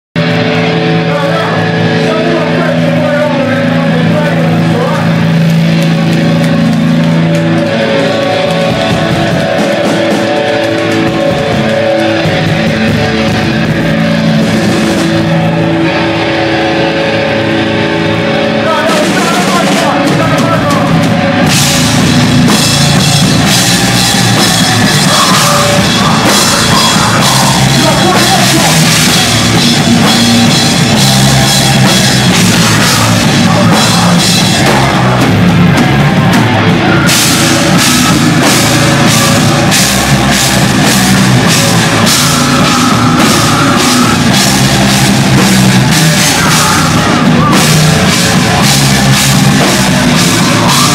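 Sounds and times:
heavy sustained guitar notes: 0:00.2 - 0:50.9
pounding drums and crashing cymbals: 0:04.0 - 0:50.9.

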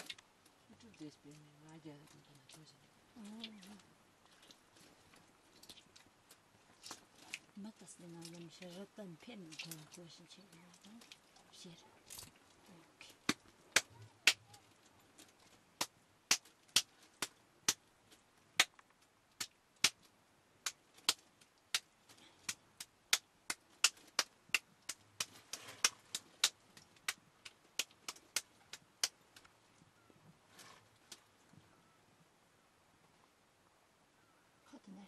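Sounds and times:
wet slaps of butter between hands: 0:15.8 - 0:17.8, 0:18.6 - 0:18.8, 0:19.4 - 0:20.0.

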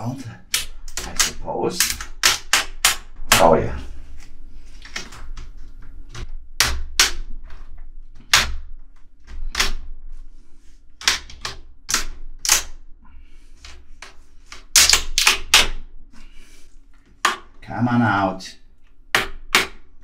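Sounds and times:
plastic clips clicking and snapping: 0:00.5 - 0:03.4.

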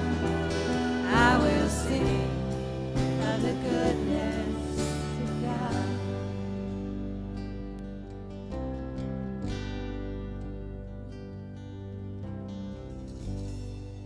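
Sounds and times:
person singing: 0:00.0 - 0:06.9
worship band playing slow song: 0:00.0 - 0:14.0.

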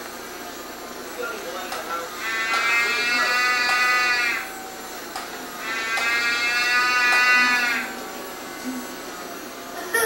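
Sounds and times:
mechanical toy cow mooing: 0:02.2 - 0:04.5, 0:05.6 - 0:08.0.

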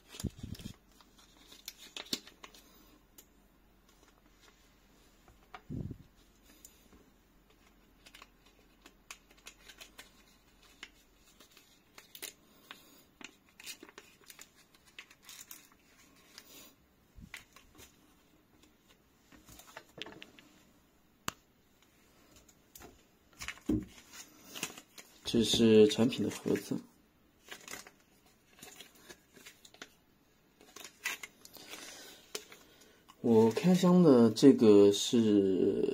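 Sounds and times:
plastic bag rustling: 0:00.0 - 0:02.6.

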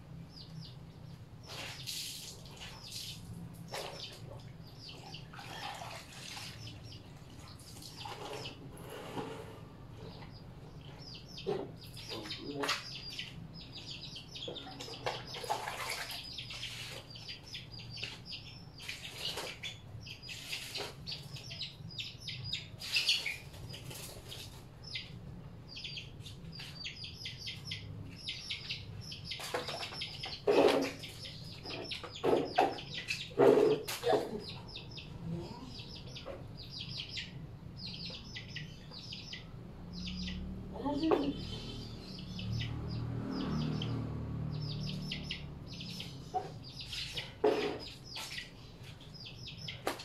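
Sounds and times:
small birds chirping: 0:00.0 - 0:50.0
water splashing in tubs: 0:01.4 - 0:08.8, 0:14.8 - 0:17.1, 0:29.4 - 0:31.2.

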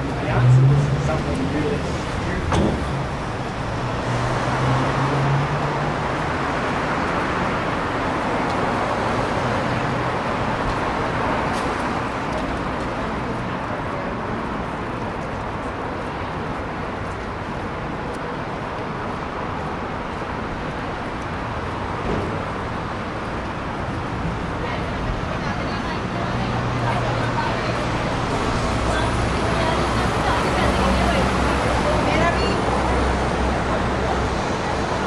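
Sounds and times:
faint voices: 0:00.0 - 0:04.2, 0:24.1 - 0:35.0
traffic noise: 0:00.0 - 0:35.0
vehicle engine hum: 0:00.0 - 0:35.0.

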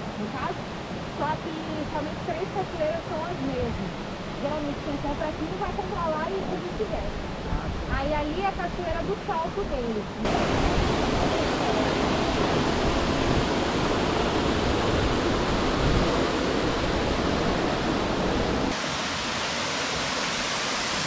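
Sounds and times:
waterfall rushing into pool: 0:10.2 - 0:21.0.

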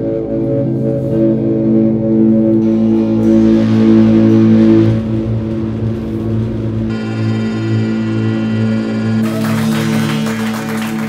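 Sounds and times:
electric guitar drone: 0:00.0 - 0:11.0.

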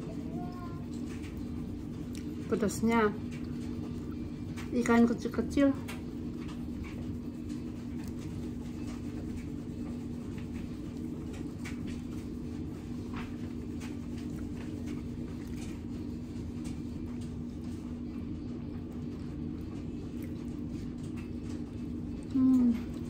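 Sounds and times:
chewing food: 0:00.8 - 0:02.5, 0:05.8 - 0:17.8, 0:18.6 - 0:23.0.

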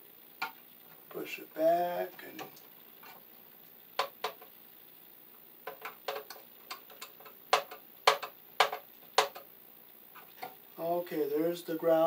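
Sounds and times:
wire knocking on metal enclosure: 0:07.5 - 0:09.4.

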